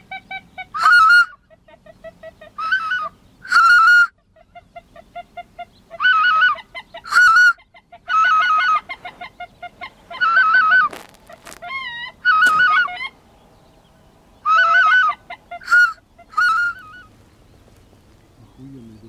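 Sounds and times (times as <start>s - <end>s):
goose honking: 0.0s - 1.4s, 2.5s - 4.2s, 5.5s - 13.2s, 14.4s - 17.1s
soft clipped goose notes: 10.2s - 13.1s.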